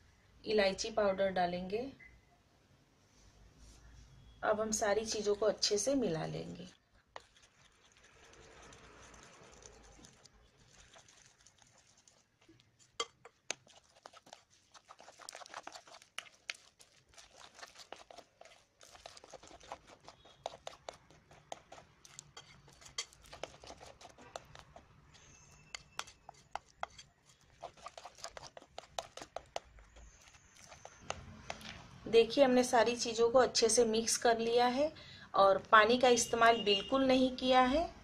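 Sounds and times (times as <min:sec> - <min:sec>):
batter squelching: 0:05.1 - 0:33.2.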